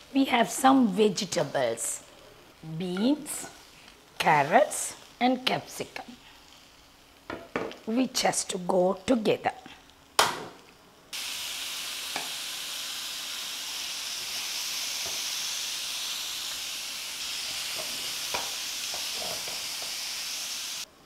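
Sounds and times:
vegetables sizzling in hot oil: 0.0 - 21.0.

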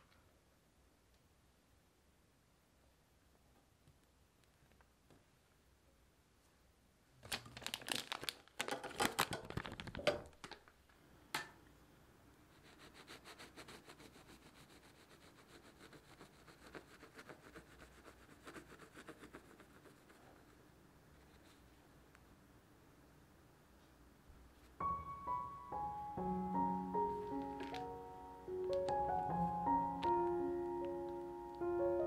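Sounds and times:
plastic bag crinkling: 7.2 - 10.8, 27.0 - 29.2.

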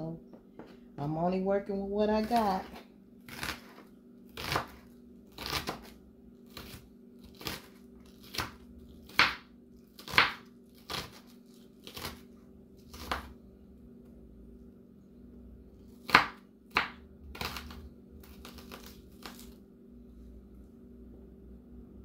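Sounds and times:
knife chopping onion on wooden board: 2.1 - 12.3, 12.9 - 13.4, 16.0 - 19.5.

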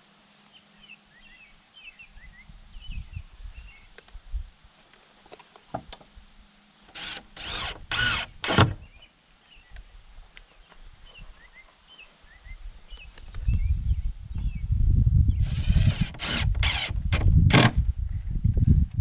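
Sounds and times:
cordless drill driving screws: 6.9 - 8.8, 15.4 - 17.8
faint bird chirps: 8.8 - 14.7.

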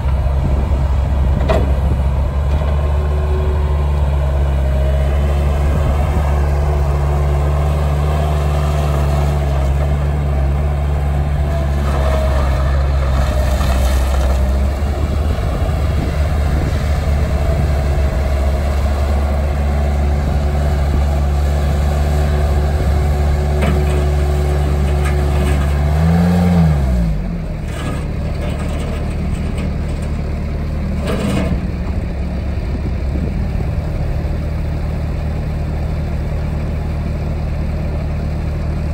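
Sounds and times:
diesel engine running: 0.0 - 38.9
short clunks: 1.3 - 2.8.

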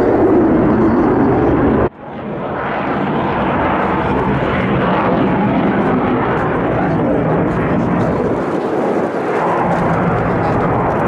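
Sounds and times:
jet engine noise: 0.0 - 11.0
jet with afterburners: 0.0 - 11.0.

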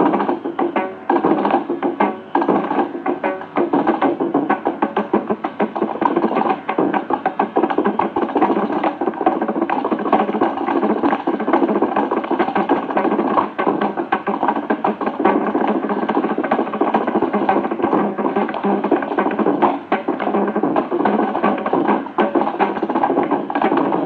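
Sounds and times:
concert music on old radio: 0.0 - 24.0
drum playing fast strokes: 0.0 - 24.0.

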